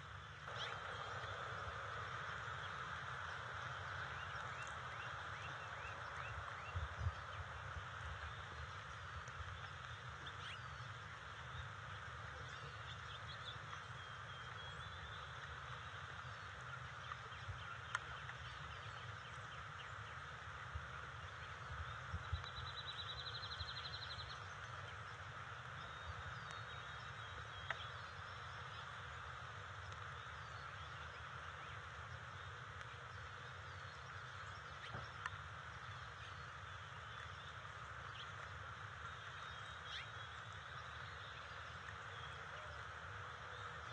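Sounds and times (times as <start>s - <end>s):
noisy outdoor background: 0.0s - 43.9s
songbird chirps: 0.0s - 43.9s.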